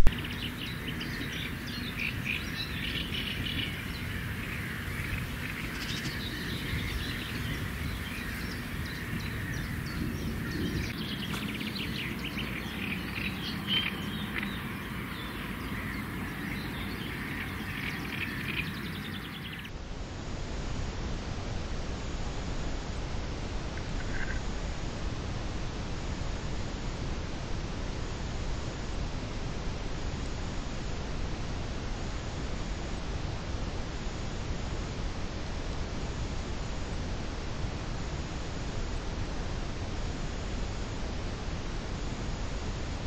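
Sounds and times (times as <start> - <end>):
low background noise: 0.0 - 43.0
birds singing and chirping: 0.1 - 19.7.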